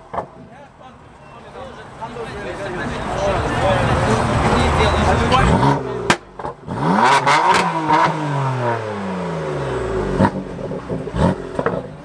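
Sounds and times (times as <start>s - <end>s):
car engine revving: 2.8s - 12.0s
exhaust cracks: 3.8s - 12.0s.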